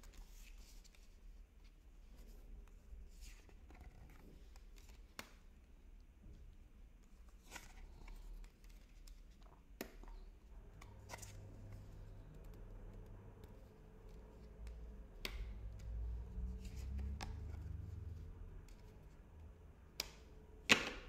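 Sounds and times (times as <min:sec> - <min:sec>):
cards snapping and tapping: 0:14.6 - 0:16.0, 0:19.9 - 0:21.0.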